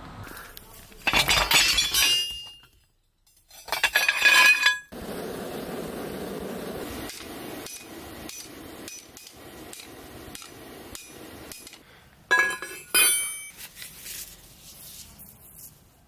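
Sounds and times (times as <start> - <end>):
hammer blows on hot steel: 5.0 - 13.5
steel bar ringing clangs: 12.3 - 13.5.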